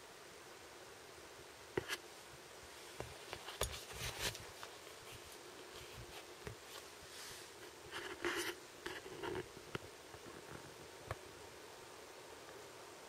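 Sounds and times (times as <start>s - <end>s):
light rustling: 2.8s - 11.2s.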